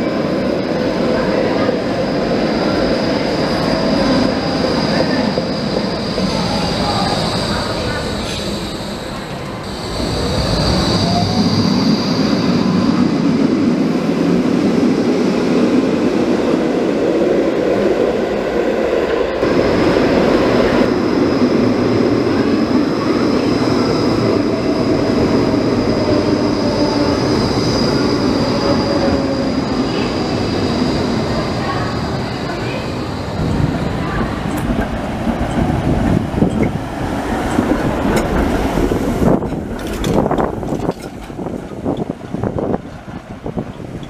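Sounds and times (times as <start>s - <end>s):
tram rolling rumble: 0.0s - 44.0s.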